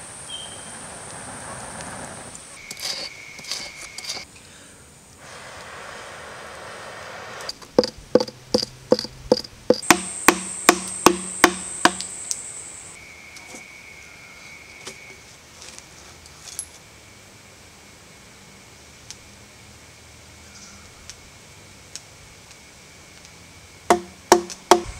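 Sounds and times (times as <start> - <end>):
insect trills: 0.0 - 6.7, 7.3 - 15.9, 16.6 - 24.9
air blowing into embers: 5.1 - 13.0
knocks on hollow log: 7.8 - 12.1, 23.9 - 24.9.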